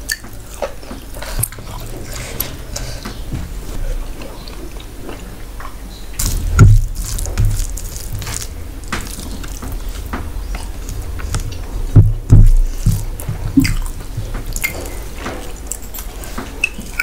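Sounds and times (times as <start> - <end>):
wet chewing and mouth smacks: 12.4 - 17.0.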